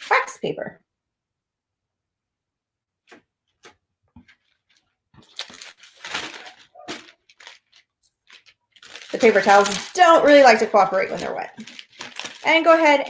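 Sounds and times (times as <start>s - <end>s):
wax paper crinkling: 3.6s - 13.0s.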